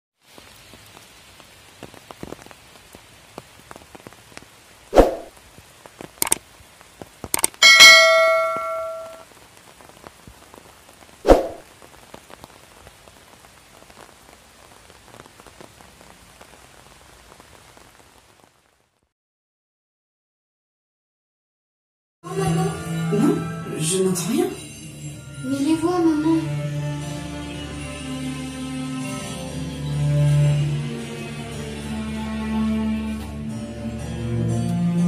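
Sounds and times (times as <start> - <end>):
faint steady hiss: 0.2 - 19.1
light ticking: 6.2 - 6.4, 7.3 - 7.6
sharp mouse clicks: 6.2 - 6.4, 7.3 - 7.6
bright bell ding: 7.6 - 9.2.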